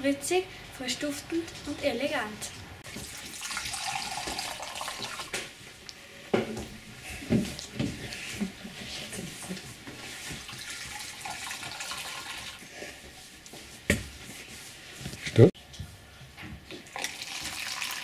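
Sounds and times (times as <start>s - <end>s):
juice pouring into a cup: 3.0s - 5.4s, 10.6s - 12.6s, 16.9s - 18.0s.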